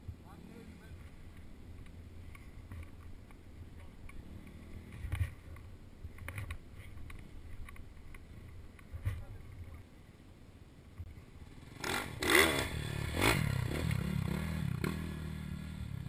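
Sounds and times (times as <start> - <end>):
motorbike engine running at low revs: 11.1 - 16.0.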